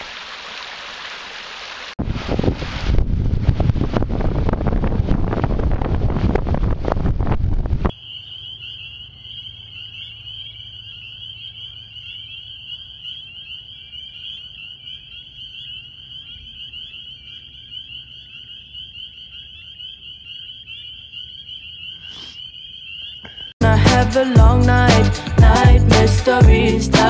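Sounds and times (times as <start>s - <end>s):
frogs peeping in chorus: 7.9s - 23.6s.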